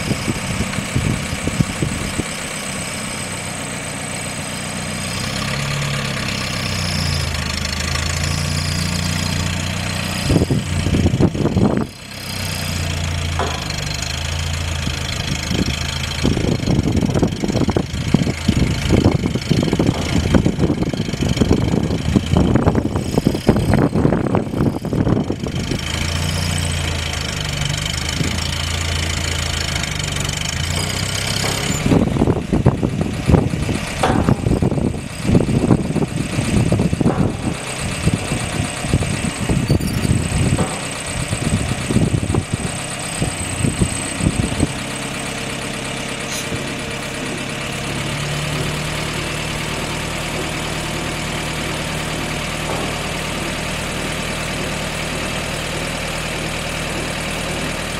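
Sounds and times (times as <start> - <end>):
wind buffeting on microphone: 0.0 - 2.3, 10.2 - 12.0, 15.2 - 26.1, 31.6 - 44.8
jeep engine running: 0.0 - 57.9.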